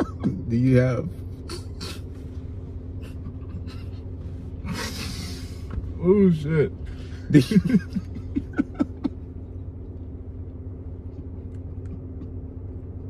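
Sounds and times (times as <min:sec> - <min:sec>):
car engine idling: 0:00.0 - 0:13.0
people laughing: 0:07.3 - 0:09.3.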